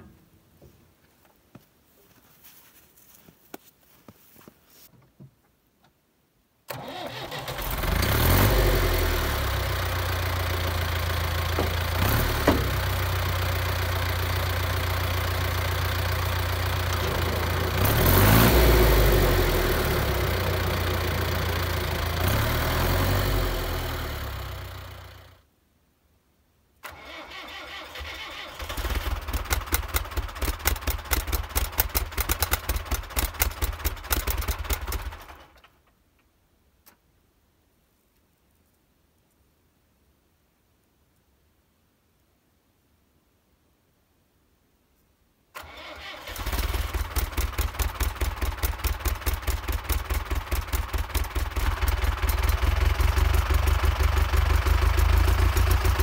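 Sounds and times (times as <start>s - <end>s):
tractor diesel engine running: 6.7s - 25.4s, 26.9s - 35.6s, 45.6s - 56.0s
diesel engine uneven pulsing: 7.6s - 25.3s, 46.4s - 56.0s.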